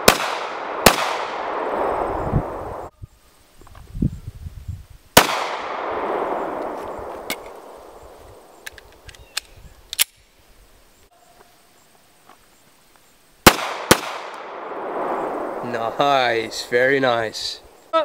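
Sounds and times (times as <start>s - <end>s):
pistol shot echoing: 0.0s - 1.9s, 5.2s - 7.8s, 13.4s - 15.4s
sharp metallic gun clicks: 8.6s - 10.3s.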